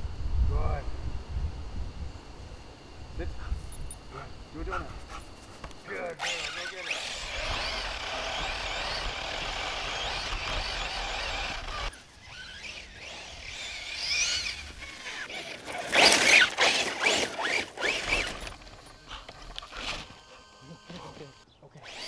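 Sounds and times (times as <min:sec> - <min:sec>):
electric motor whining: 0:05.6 - 0:22.0.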